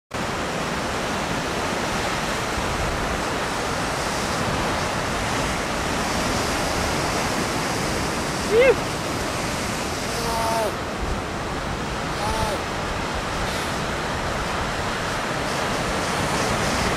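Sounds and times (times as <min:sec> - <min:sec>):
ocean surf breaking: 0:00.2 - 0:16.9.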